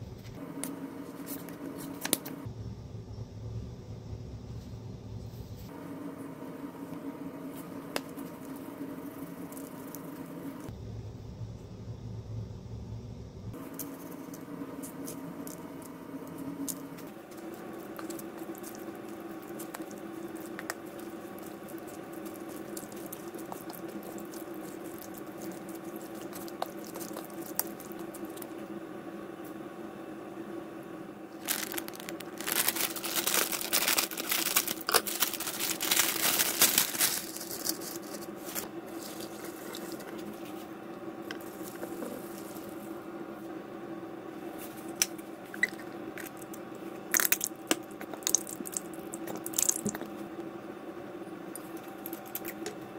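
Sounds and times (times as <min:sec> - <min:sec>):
low hum: 0:00.0 - 0:52.9
hot water running into bowl: 0:16.6 - 0:28.7, 0:45.6 - 0:50.1.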